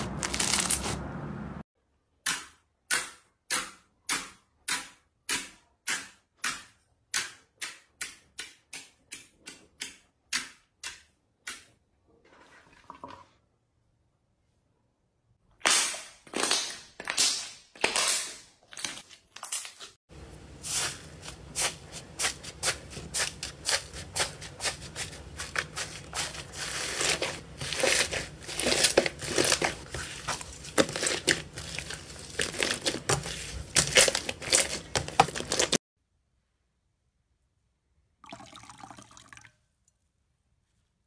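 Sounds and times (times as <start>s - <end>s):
slime squelching: 20.5s - 35.8s.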